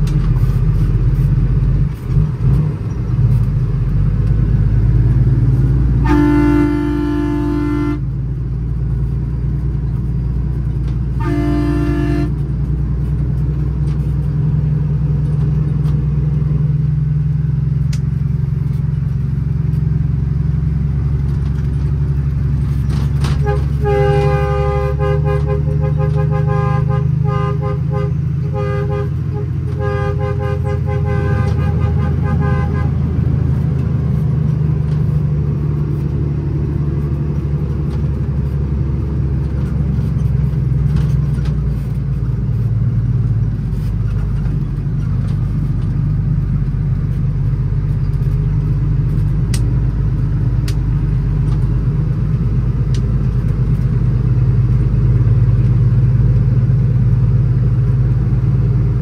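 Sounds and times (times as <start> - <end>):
diesel truck engine droning: 0.0 - 59.0
horn short blasts: 6.0 - 8.1, 11.1 - 12.5, 23.3 - 33.0.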